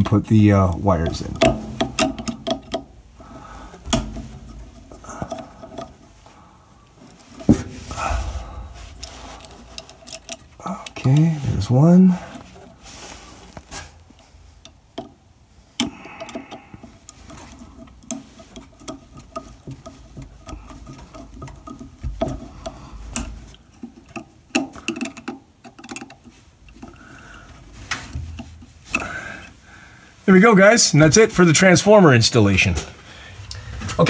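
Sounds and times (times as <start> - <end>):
wire rustling: 0.0 - 34.0
screwdriver clicking and scraping: 0.7 - 6.2, 8.9 - 11.4, 15.8 - 29.6.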